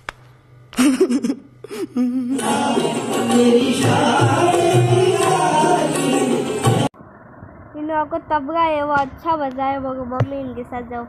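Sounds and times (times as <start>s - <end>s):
male voices singing: 2.3s - 6.9s
qawwali music: 2.3s - 6.9s.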